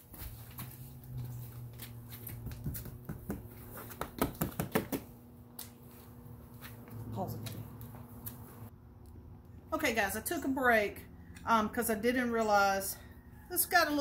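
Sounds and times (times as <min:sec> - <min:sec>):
low steady hum: 0:04.9 - 0:14.0.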